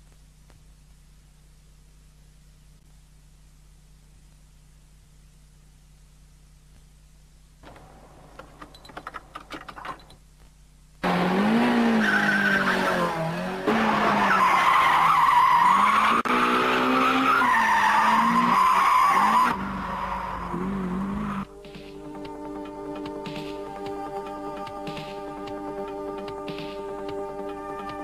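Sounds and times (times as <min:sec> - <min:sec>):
car engine revving: 0:11.0 - 0:21.5.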